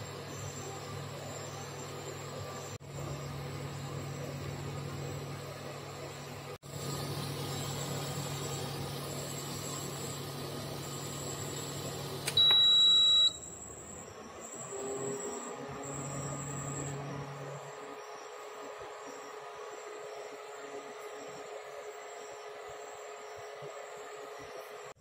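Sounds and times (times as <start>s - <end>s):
induction cooktop humming: 0.0s - 25.0s
liquid boiling and bubbling: 6.6s - 12.2s.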